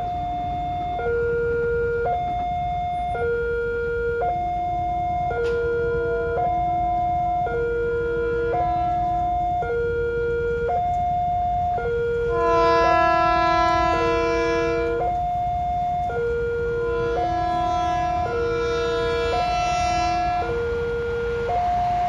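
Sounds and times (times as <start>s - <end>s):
level crossing two-tone alarm: 0.0s - 22.0s
train horn blowing: 5.4s - 6.6s, 7.6s - 9.4s, 12.1s - 15.2s, 16.0s - 22.0s.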